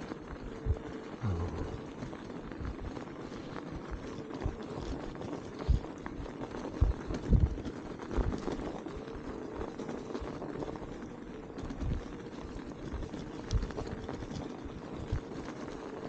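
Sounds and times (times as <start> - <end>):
short low thumps: 1.2 - 1.9.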